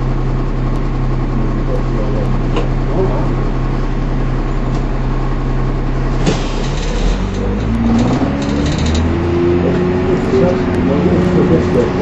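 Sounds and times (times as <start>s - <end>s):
bus diesel engine running: 0.0s - 12.0s.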